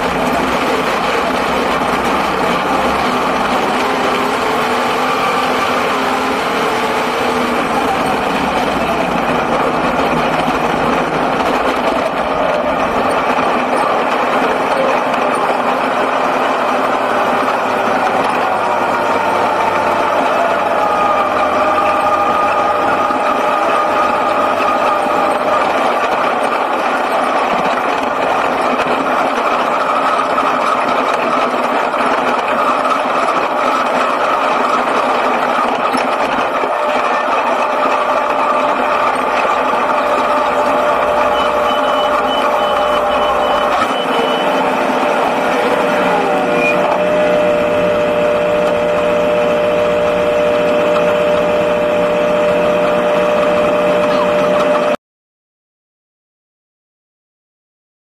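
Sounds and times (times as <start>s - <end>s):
car engine running: 0.0s - 55.0s
high repeated beeping: 41.1s - 44.7s.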